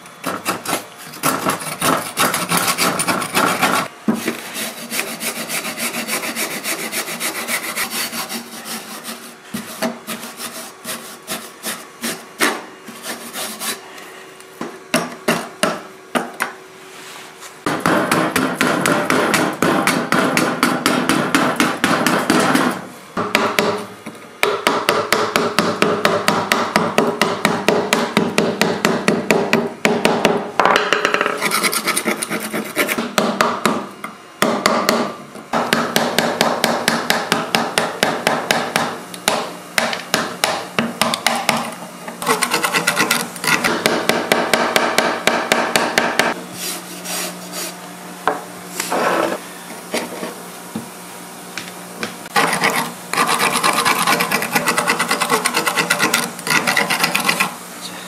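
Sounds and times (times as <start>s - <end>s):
metal scraper scraping rust: 0.2s - 3.9s, 31.3s - 33.0s, 42.2s - 43.8s, 52.3s - 57.5s.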